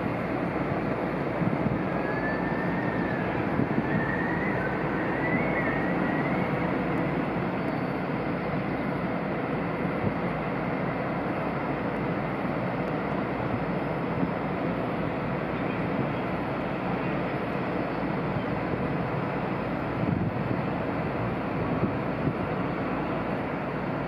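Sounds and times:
rumbling background noise: 0:00.0 - 0:24.0
faint wavering high whistle: 0:01.9 - 0:06.8.

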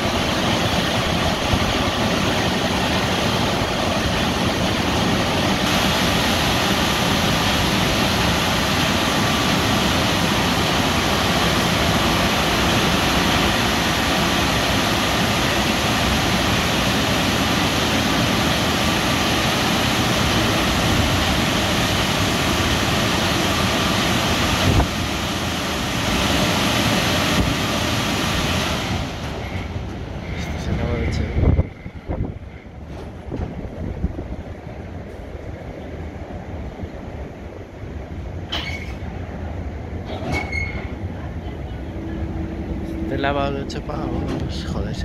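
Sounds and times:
air-dryer blowers rushing: 0:00.0 - 0:29.6.

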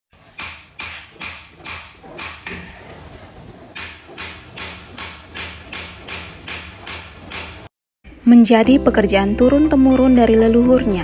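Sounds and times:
hammer striking steel punch: 0:00.3 - 0:02.6, 0:03.8 - 0:07.7.

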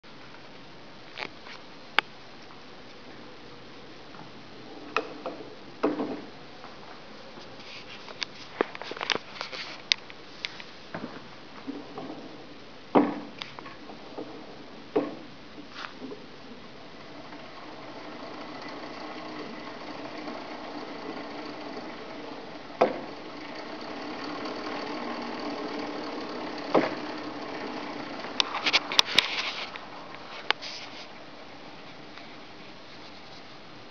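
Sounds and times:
sharp knocks: 0:05.0 - 0:06.3, 0:12.9 - 0:15.3, 0:22.8 - 0:23.2, 0:26.7 - 0:27.2
arm-crank machine whirring: 0:16.7 - 0:31.8.

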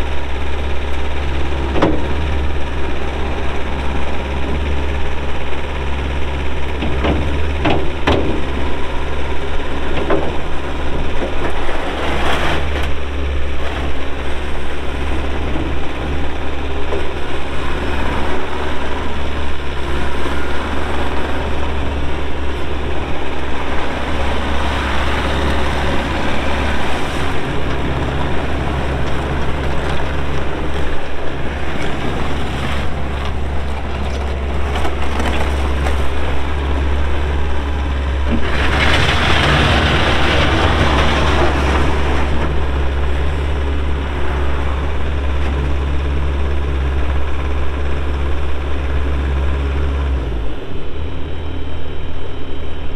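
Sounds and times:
diesel engine running: 0:00.0 - 0:52.9.

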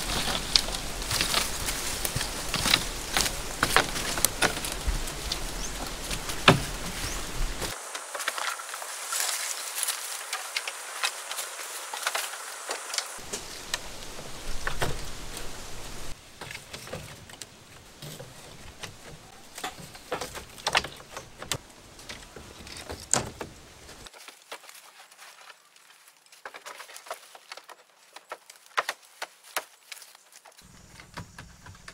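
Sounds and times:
scraping and rustling: 0:00.0 - 0:31.9
bamboo poles knocking: 0:00.1 - 0:08.6, 0:16.4 - 0:23.6, 0:30.6 - 0:31.9.

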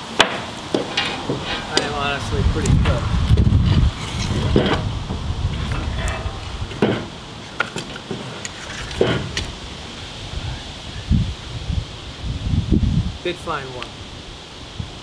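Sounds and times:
wooden block shifted on boards: 0:00.2 - 0:02.0, 0:02.8 - 0:09.6
steel cable clanking on wood: 0:00.2 - 0:09.6.

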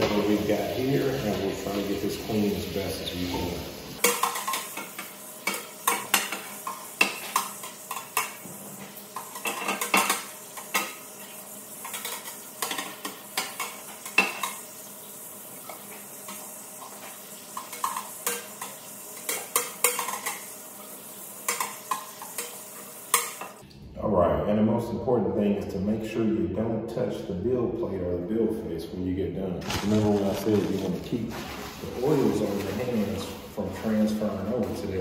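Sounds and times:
water running from a tap: 0:00.0 - 0:23.6.

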